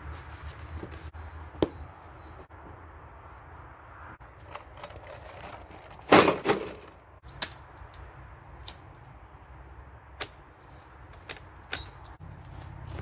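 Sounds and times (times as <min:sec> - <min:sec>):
crate of bottles clattering down: 0:04.9 - 0:06.9.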